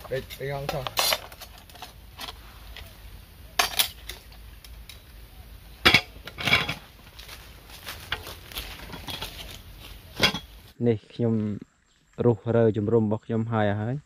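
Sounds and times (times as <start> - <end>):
metal spoons and dishes clinking: 3.6 - 4.2, 5.8 - 6.8, 10.2 - 10.5.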